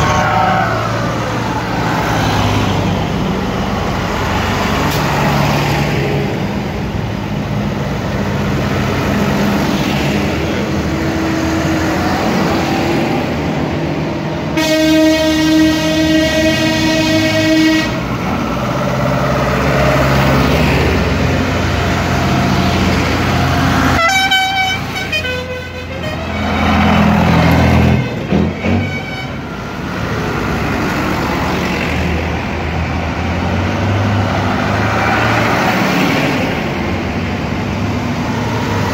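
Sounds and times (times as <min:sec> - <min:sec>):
tractor diesel engines running: 0:00.0 - 0:38.9
horn blast: 0:14.6 - 0:18.1.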